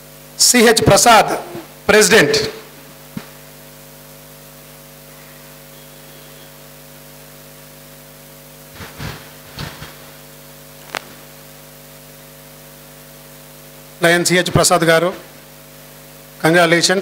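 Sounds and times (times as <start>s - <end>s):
electrical mains hum: 0.0s - 17.0s.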